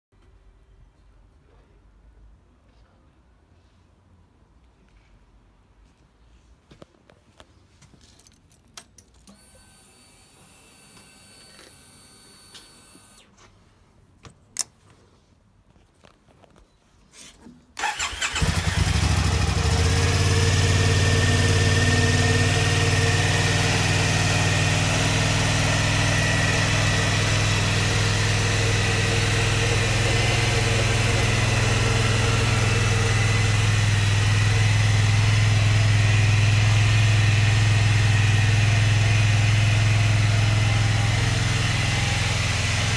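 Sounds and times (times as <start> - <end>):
motorcycle engine idling: 17.8 - 42.9.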